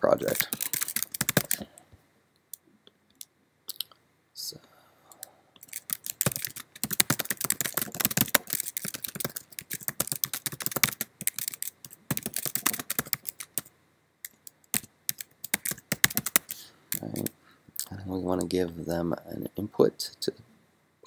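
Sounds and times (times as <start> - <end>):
fast typing on keyboard: 0.2 - 1.7, 5.6 - 13.7, 14.3 - 17.3.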